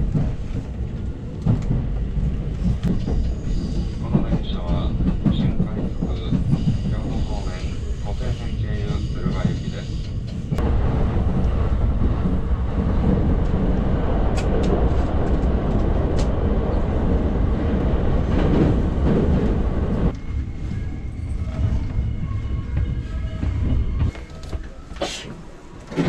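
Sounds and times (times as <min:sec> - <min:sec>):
train wheels rumbling on rails: 0:00.0 - 0:26.0
sharp clicks of train wheels: 0:14.2 - 0:16.4.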